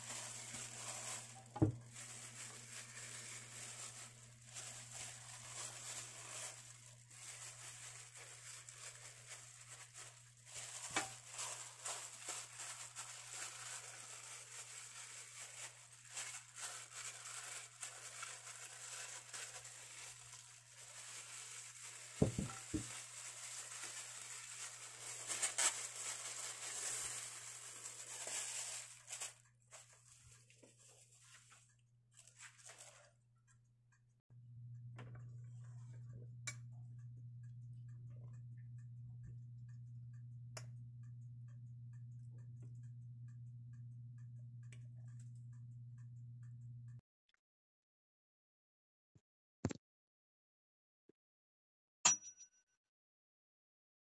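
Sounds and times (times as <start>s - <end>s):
plastic glove crinkling: 0.0s - 33.2s.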